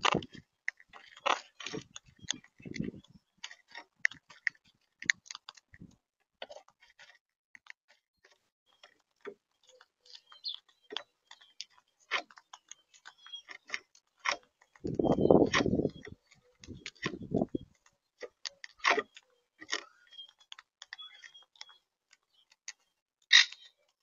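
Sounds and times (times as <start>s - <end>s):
parakeets cracking seeds: 0.0s - 5.8s, 9.6s - 23.8s.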